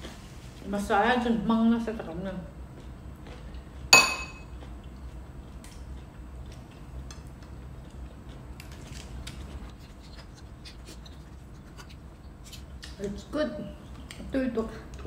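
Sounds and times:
spoon clinking ceramic bowl: 4.0 - 4.5.

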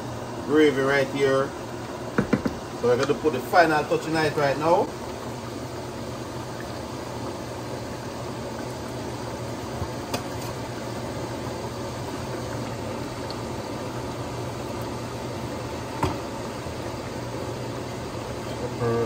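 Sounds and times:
stew bubbling: 1.5 - 19.0
knocks on cutting board: 2.2 - 2.6, 16.0 - 16.2.

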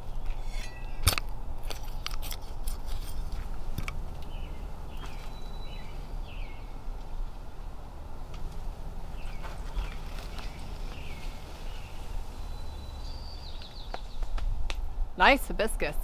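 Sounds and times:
small bird chirping: 0.0 - 1.0, 4.2 - 6.8, 9.1 - 14.4
metal trowel scraping soil: 0.0 - 3.4
low outdoor rumble: 0.0 - 16.0.

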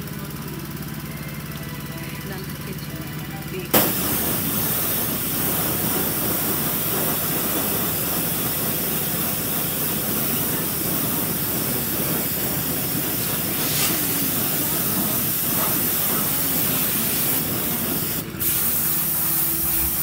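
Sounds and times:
hose spray hissing on wheel: 3.8 - 20.0.

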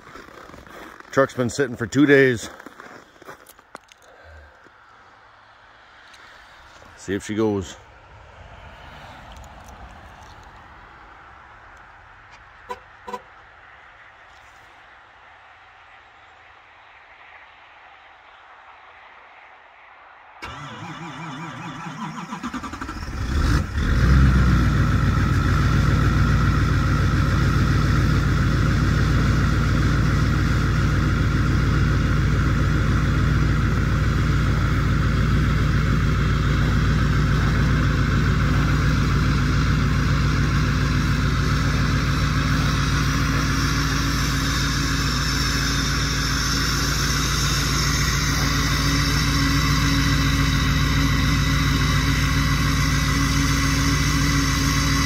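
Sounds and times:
diesel engine idling: 20.4 - 55.0
diesel engine starting: 20.4 - 55.0.

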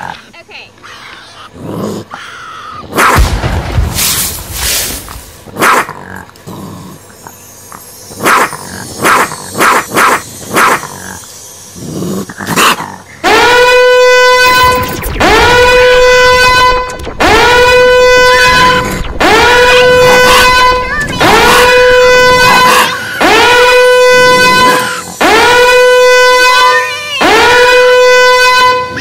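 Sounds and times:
animal barks and growls: 5.5 - 7.0, 8.2 - 13.7
horn blasts: 13.2 - 29.0.

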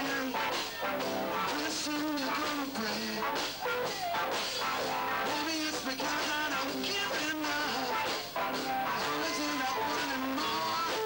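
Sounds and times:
man singing: 0.0 - 0.7, 1.3 - 3.6, 5.2 - 11.0
electric guitar: 0.0 - 11.0
live rock band playing: 0.0 - 11.0.

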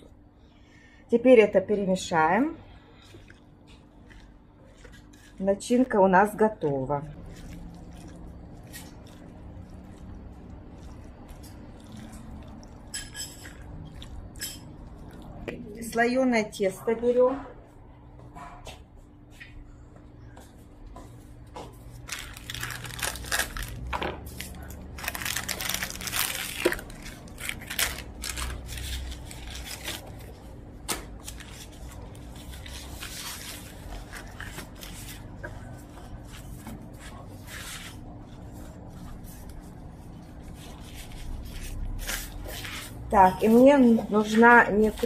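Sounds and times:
baking paper rustling: 2.0 - 15.4, 21.8 - 45.0
plastic wrapping crinkling and tearing: 6.6 - 15.4, 21.9 - 45.0.

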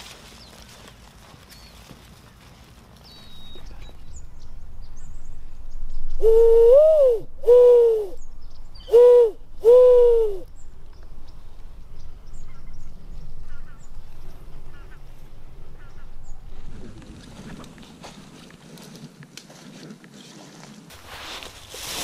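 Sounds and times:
low hand-blown dove call hoots: 6.1 - 8.2, 8.8 - 10.5.

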